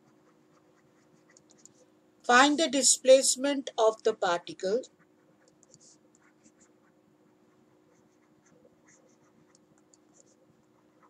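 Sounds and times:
stylus scratching on tablet: 0:00.0 - 0:03.2, 0:04.2 - 0:11.0
faint steady hum: 0:00.0 - 0:11.0.

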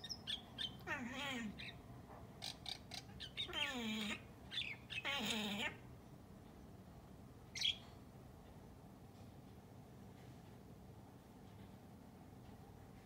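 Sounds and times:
cat chattering chirps: 0:00.0 - 0:01.8, 0:02.4 - 0:05.8
cat mewing: 0:00.8 - 0:01.7, 0:03.4 - 0:04.2, 0:05.0 - 0:05.8.

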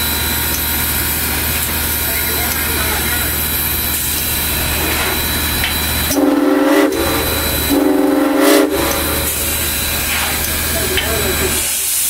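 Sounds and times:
steady steam hiss: 0:00.0 - 0:12.0
steam whistle blasts: 0:06.1 - 0:09.5.

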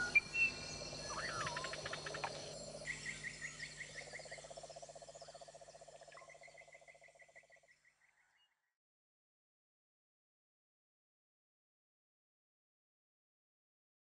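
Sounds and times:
insects chirping: 0:00.0 - 0:07.8
frogs chirping: 0:00.0 - 0:08.4.

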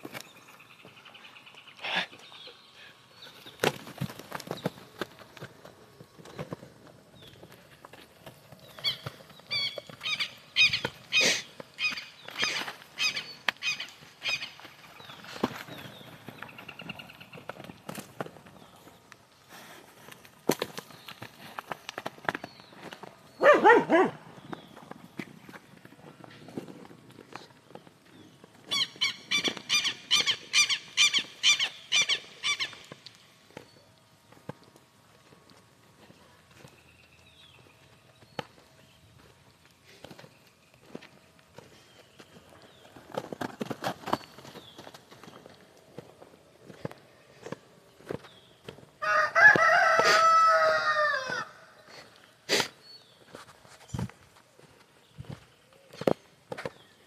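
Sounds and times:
footsteps on loose dirt: 0:03.2 - 0:23.8, 0:24.4 - 0:28.8, 0:32.8 - 0:52.2, 0:53.0 - 0:57.0
rooster crowing: 0:49.0 - 0:51.6.

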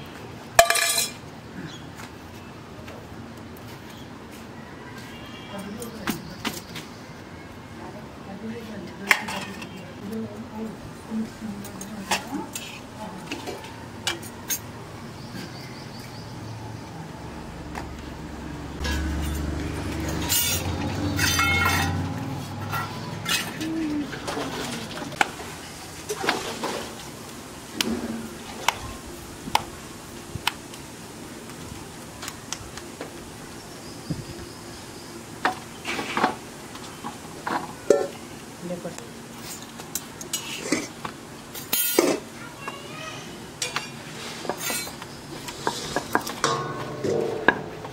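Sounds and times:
pans knocking and clinking: 0:00.6 - 0:01.2, 0:45.7 - 0:47.9
spatula clinking on griddle: 0:00.6 - 0:01.2, 0:21.2 - 0:22.0.

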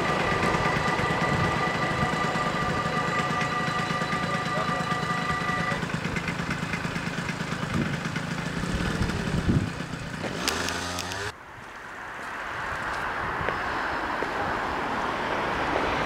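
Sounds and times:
level crossing warning bells: 0:00.0 - 0:06.8
scooter engine idling: 0:00.0 - 0:11.3.

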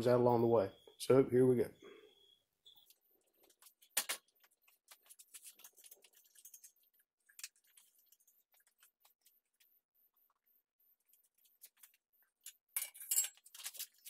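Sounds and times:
metallic clicks and clinks: 0:12.4 - 0:14.0.

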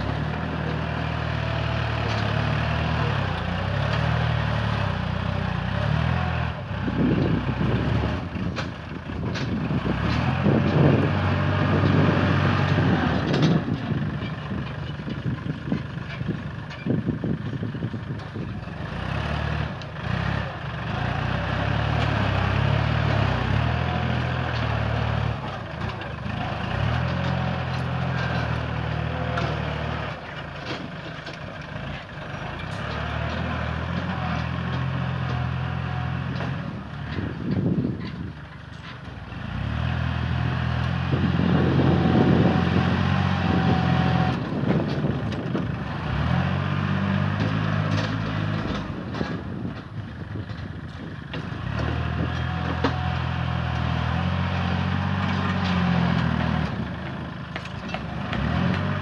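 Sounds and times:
tractor diesel engine under load: 0:00.0 - 0:59.0
blade pushing soil: 0:17.5 - 0:59.0.

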